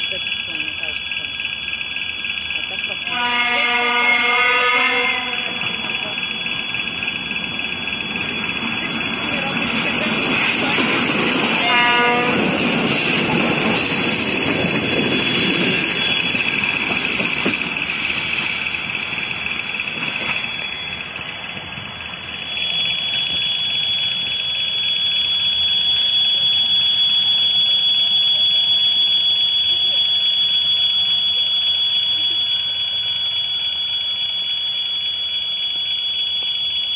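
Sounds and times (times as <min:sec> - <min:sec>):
locomotive engine rumble: 0:00.0 - 0:25.8
rail noise: 0:00.0 - 0:32.2
high-pitched alarm tone: 0:00.0 - 0:36.9.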